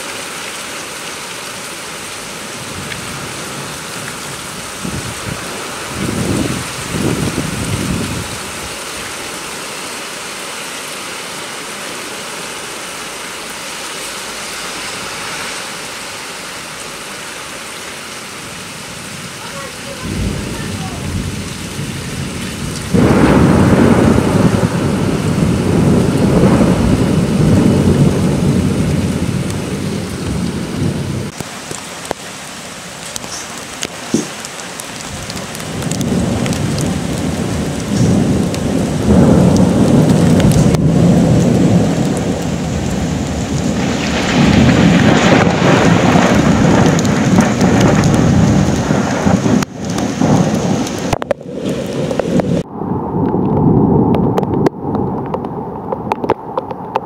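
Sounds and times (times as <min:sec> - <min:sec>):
steady rain: 0:00.0 - 0:57.0
rolling thunder: 0:02.6 - 0:09.1, 0:20.0 - 0:31.4, 0:35.0 - 0:57.0.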